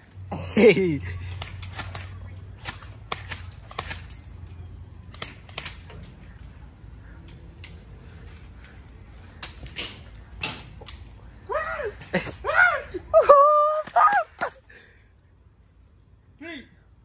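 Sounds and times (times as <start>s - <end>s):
airsoft guns firing: 1.3s - 4.1s.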